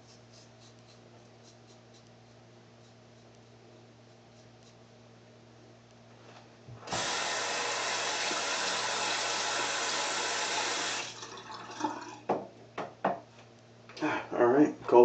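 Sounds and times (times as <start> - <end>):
tap running water: 6.9 - 12.9.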